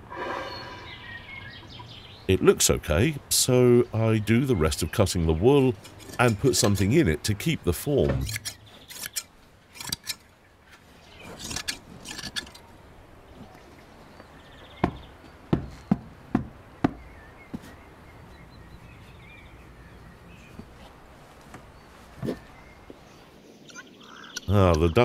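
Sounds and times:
faint bird chirps: 0.2s - 2.3s, 21.7s - 25.0s.

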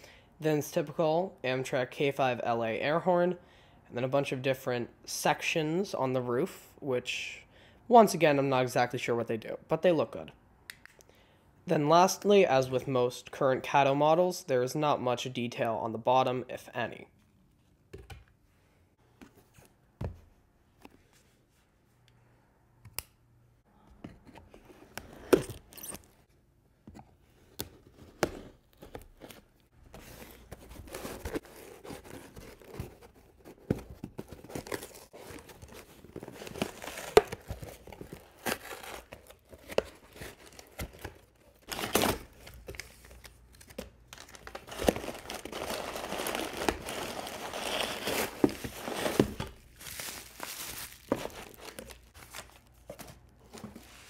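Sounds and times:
bubble wrap crinkling: 34.4s - 54.0s
cardboard and paper tearing: 44.5s - 52.6s.

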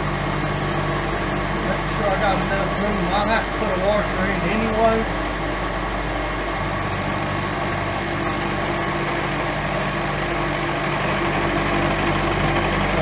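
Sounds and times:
end mill cutting metal: 0.0s - 13.0s
milling machine hum: 0.0s - 13.0s.

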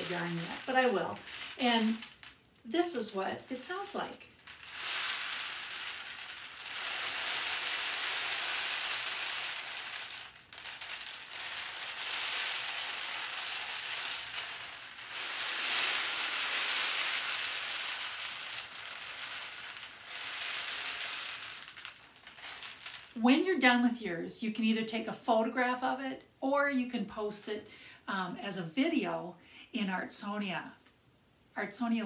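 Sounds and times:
rainstick trickling: 0.0s - 23.2s.

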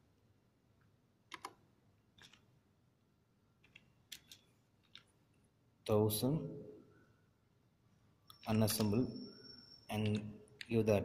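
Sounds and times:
keypad key clicks: 1.3s - 1.6s.

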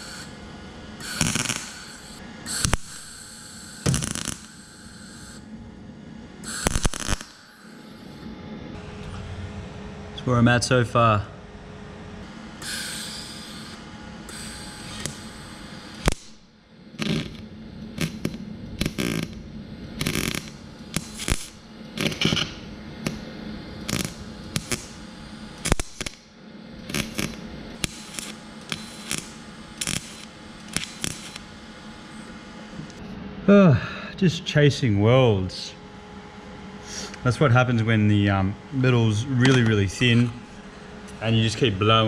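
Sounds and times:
welding bursts: 1.0s - 5.4s, 6.4s - 7.8s, 12.6s - 16.4s, 17.0s - 17.4s, 18.0s - 19.4s, 20.0s - 31.6s.

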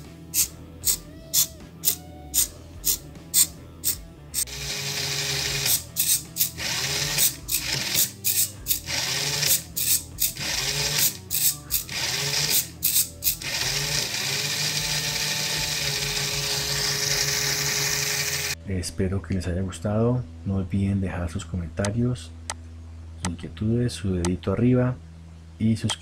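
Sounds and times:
servo buzzing: 0.0s - 18.6s
steady low hum: 0.0s - 26.0s.

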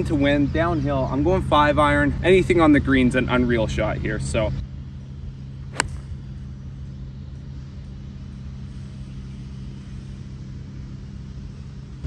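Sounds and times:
distant motor humming: 5.2s - 6.8s.

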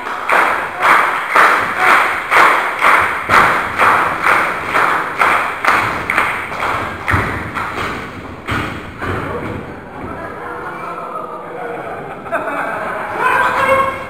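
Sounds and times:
crowd clapping in unison: 0.0s - 8.5s.

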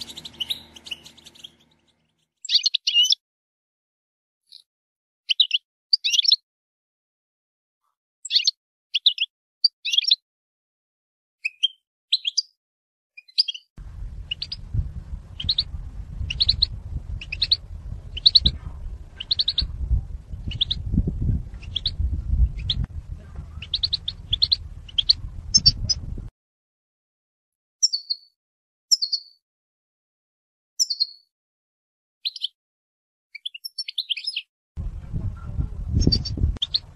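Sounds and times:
low rumble: 0.0s - 1.9s, 13.8s - 26.3s, 34.8s - 36.9s
goldfinch chattering calls: 0.0s - 3.1s, 14.2s - 14.7s, 15.3s - 22.8s, 23.4s - 26.0s, 36.0s - 36.9s.

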